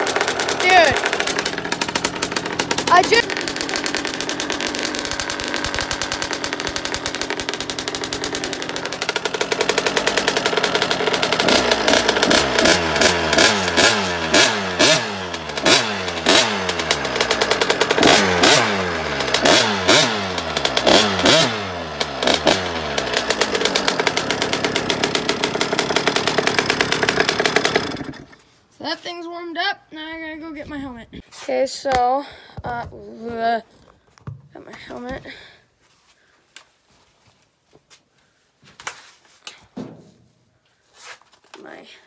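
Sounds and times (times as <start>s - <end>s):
two-stroke engine idling: 0.0s - 28.4s.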